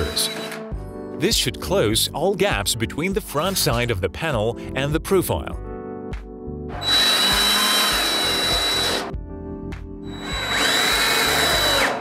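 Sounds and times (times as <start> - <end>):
cordless drill driving screws: 0.0 - 0.7, 6.8 - 9.1, 10.1 - 12.0.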